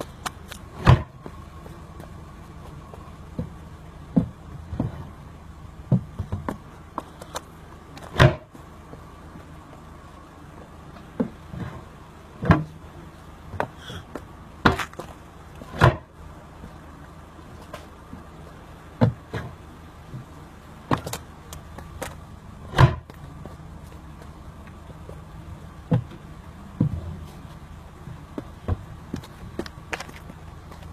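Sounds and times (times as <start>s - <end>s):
knocks and thuds on wood panels: 0.8s - 1.4s, 3.3s - 5.0s, 5.9s - 7.1s, 8.0s - 8.6s, 12.4s - 12.7s, 13.5s - 16.1s, 19.0s - 21.2s, 22.7s - 23.2s, 25.9s - 26.2s, 28.4s - 29.7s
cabinet doors opening and shutting: 22.7s - 23.0s.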